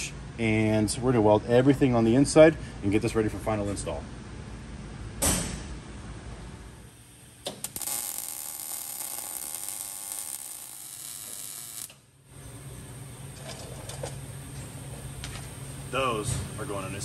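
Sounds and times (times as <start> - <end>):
welder crackling sizzle: 6.8 - 17.0
welding arc clicks: 7.3 - 12.1.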